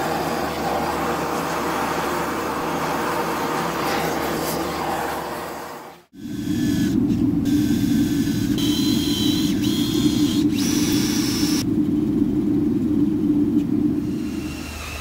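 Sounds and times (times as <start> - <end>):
drill bit cutting whine: 6.4 - 11.6.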